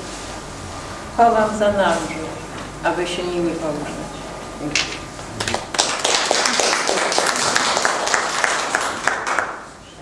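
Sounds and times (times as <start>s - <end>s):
audience applauding: 5.3s - 9.9s.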